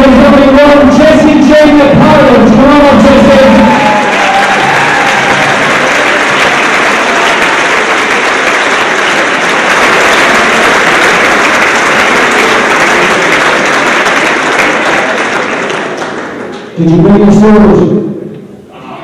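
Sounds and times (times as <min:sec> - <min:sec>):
audience applauding: 0:03.6 - 0:16.8.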